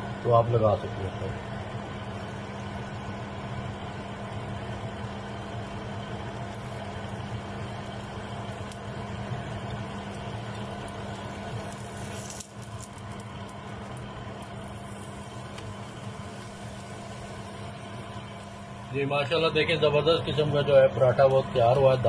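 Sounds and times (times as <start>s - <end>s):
paratha cooking on a hot griddle: 0.0s - 22.0s
steady low hum: 0.0s - 22.0s.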